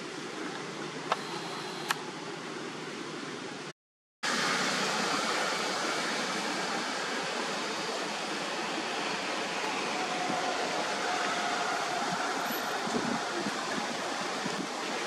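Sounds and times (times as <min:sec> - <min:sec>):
outdoor background hiss: 0:00.0 - 0:03.7.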